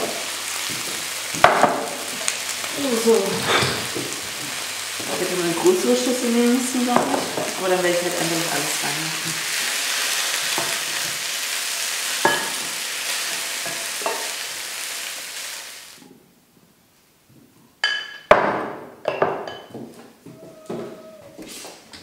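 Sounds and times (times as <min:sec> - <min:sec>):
food sizzling in a pan: 0:00.0 - 0:16.0
dishes set down on table: 0:17.8 - 0:19.9
utensils clinking on dish: 0:19.1 - 0:19.8.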